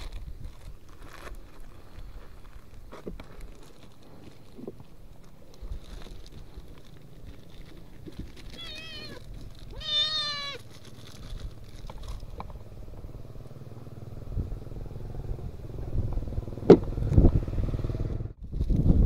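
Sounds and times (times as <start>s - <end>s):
handling sounds: 0.0s - 12.7s
rustling: 0.0s - 12.7s
kitten meowing: 8.5s - 10.7s.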